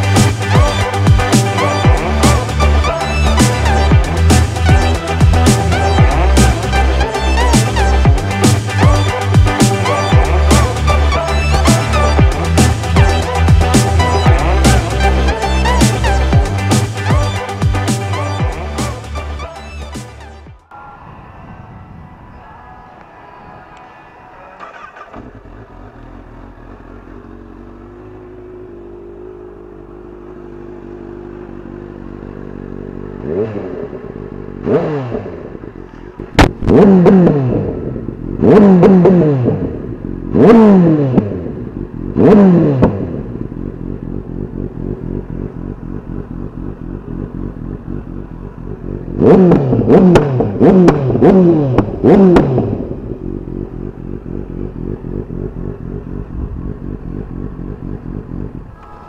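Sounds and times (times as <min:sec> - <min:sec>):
motorcycle engine revving: 0:00.0 - 0:20.6, 0:23.4 - 0:59.0
exhaust crack: 0:23.7 - 0:29.8, 0:32.3 - 0:59.0.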